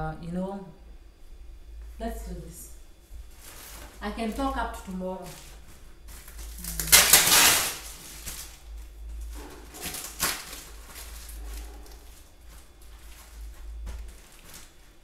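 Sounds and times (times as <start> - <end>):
plastic crinkling: 3.2 - 15.0
plastic wrapping ripping: 5.2 - 14.9.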